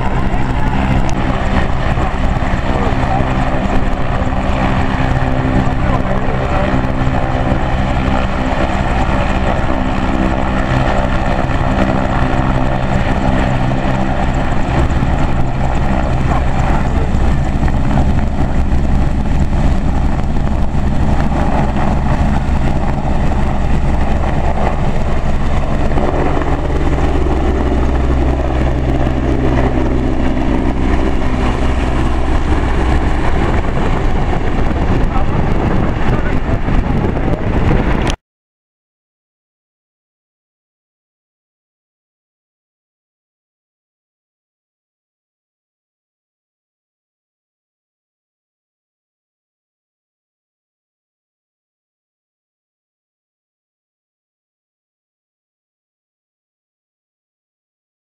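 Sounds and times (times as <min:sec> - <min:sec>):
helicopter engines and rotors: 0:00.0 - 0:38.2.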